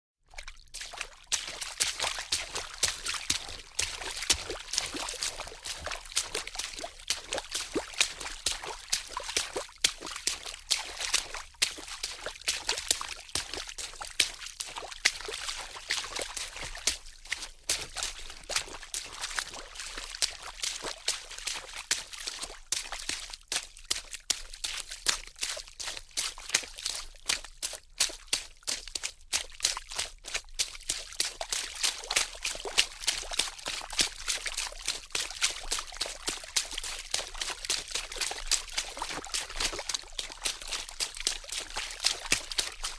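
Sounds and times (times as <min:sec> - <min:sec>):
water splashing: 0:00.4 - 0:23.2.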